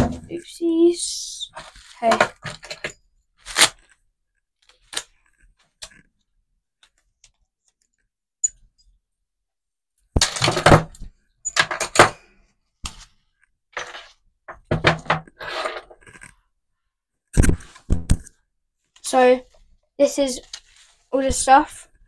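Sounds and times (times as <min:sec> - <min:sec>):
padlocks clunking on a desk: 0:10.2 - 0:12.2.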